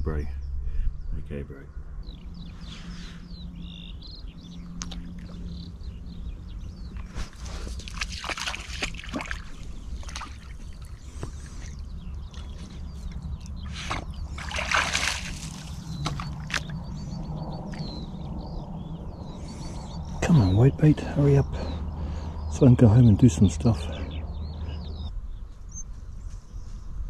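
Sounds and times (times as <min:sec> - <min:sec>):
dog splashing in water: 0:07.7 - 0:10.9, 0:13.9 - 0:16.7.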